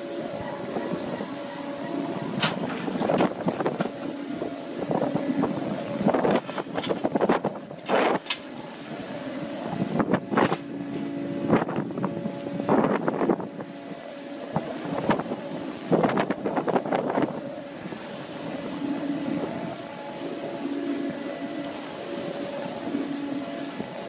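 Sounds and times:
deck machinery humming: 0.0s - 24.0s
wind buffeting microphone: 0.0s - 24.0s
net gear clanking and rattling: 2.4s - 4.1s, 5.8s - 8.6s, 10.3s - 11.8s.

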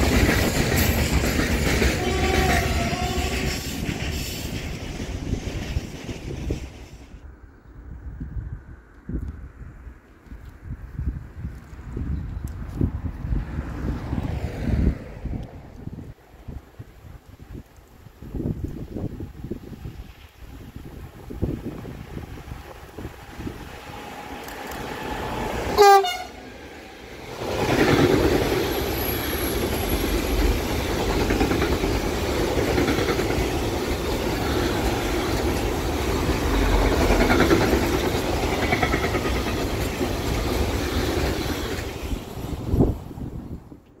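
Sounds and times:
train wheels clattering on rails: 0.0s - 7.1s, 27.2s - 42.4s
locomotive horn blast: 2.0s - 3.5s, 25.7s - 26.5s.

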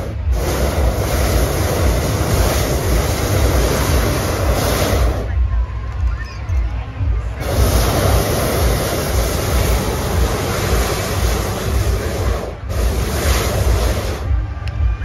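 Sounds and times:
propane burner blasting: 0.0s - 5.6s, 7.3s - 14.6s
wind rumble on microphone: 0.0s - 15.0s.

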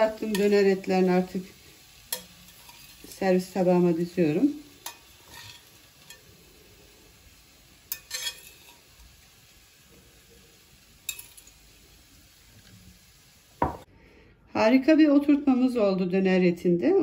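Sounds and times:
dull knock on plate: 13.6s - 13.8s.

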